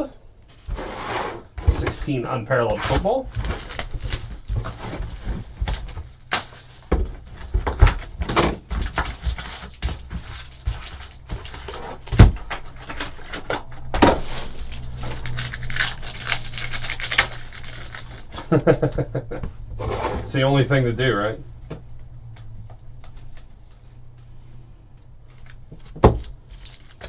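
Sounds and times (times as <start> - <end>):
foil packs crinkling: 2.0 - 19.0, 25.3 - 27.0
foil pack tearing: 2.9 - 6.9, 8.7 - 18.7, 26.5 - 27.0.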